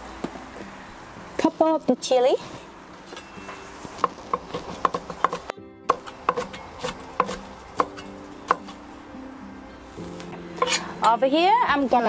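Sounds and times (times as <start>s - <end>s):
knife chopping on wooden board: 4.0s - 8.7s.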